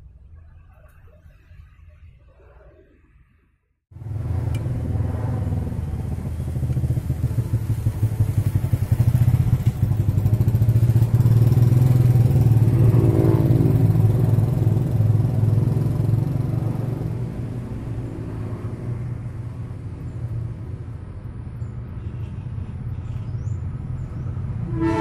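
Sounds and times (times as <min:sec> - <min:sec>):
motorcycle engine riding off: 0:04.0 - 0:20.5.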